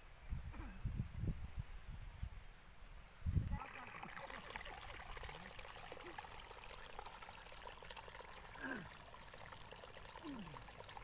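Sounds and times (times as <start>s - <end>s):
water trickling in channel: 3.4s - 11.0s.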